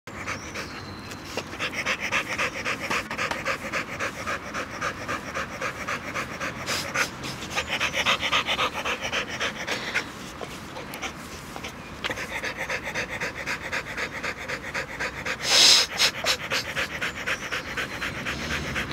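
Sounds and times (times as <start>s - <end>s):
dog panting: 0.1s - 18.9s.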